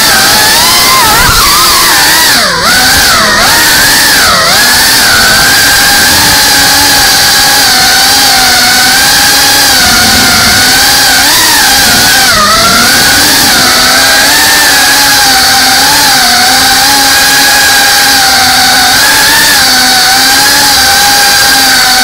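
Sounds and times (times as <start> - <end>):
drone motors whining: 0.0 - 22.0
rushing propeller wash: 0.0 - 22.0.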